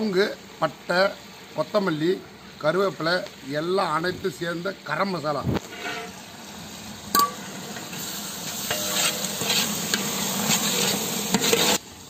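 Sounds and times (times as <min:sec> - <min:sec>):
food sizzling: 0:00.0 - 0:12.0
ladle scraping pot: 0:05.6 - 0:06.2, 0:08.6 - 0:11.8.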